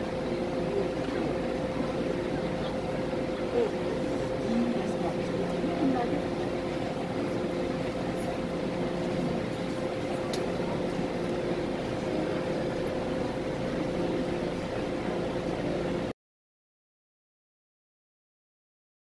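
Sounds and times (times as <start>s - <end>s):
train carriage rumble: 0.0s - 16.1s.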